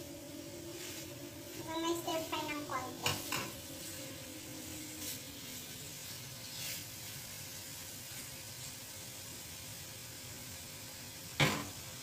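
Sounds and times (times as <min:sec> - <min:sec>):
chicken sizzling in oil: 0:00.0 - 0:12.0
wooden spatula scraping pan: 0:04.8 - 0:07.2.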